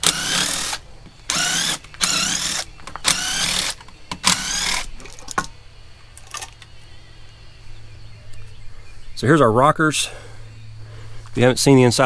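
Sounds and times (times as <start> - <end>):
cordless drill whining: 0.0 - 4.9.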